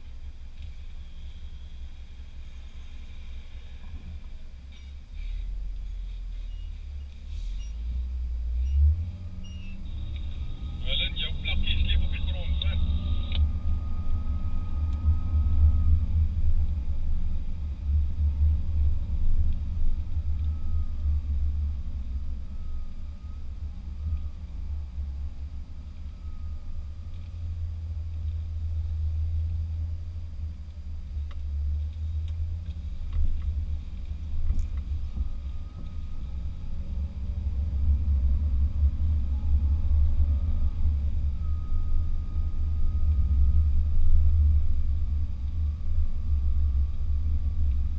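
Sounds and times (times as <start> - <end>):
low rumble of engine and tyres: 0.0 - 47.9.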